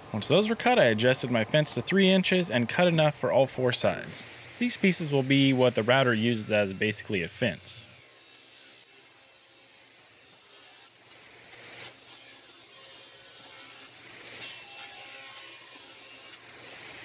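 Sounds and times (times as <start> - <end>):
saw cutting plywood: 4.2 - 17.0
table saw motor whine: 4.2 - 17.0.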